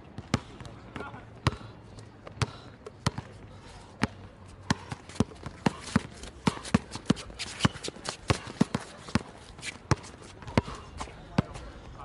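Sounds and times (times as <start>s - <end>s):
basketball bouncing on court: 0.2s - 1.7s, 2.4s - 3.3s, 4.0s - 10.8s.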